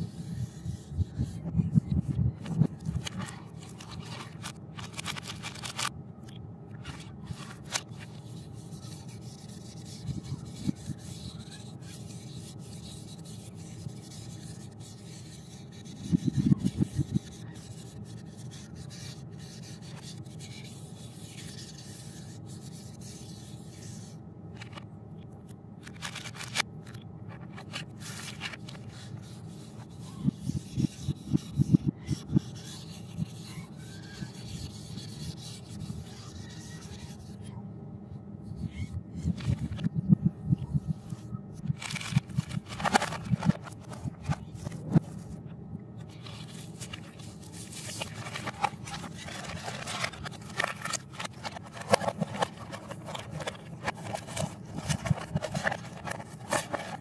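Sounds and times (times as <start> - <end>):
quick scratchy marker strokes: 0.0 - 1.5, 6.9 - 24.2, 27.6 - 37.4
marker scraping on cardboard: 6.9 - 24.8, 27.3 - 37.4, 46.1 - 57.0.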